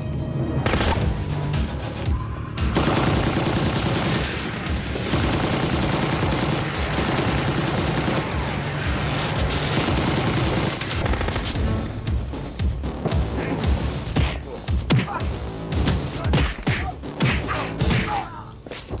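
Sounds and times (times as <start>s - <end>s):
machine-gun fire: 2.8s - 11.6s.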